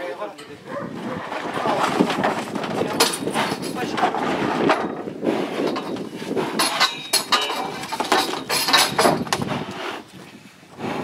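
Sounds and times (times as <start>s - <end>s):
steel pipe bars clanking: 0.3s - 5.0s, 5.6s - 9.4s.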